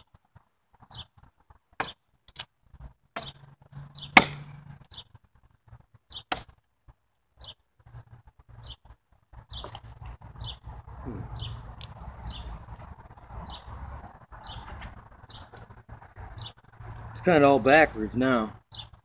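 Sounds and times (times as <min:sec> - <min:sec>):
machete chopping wooden pole: 0:01.8 - 0:02.5, 0:03.1 - 0:03.4, 0:04.0 - 0:04.8, 0:06.2 - 0:06.6.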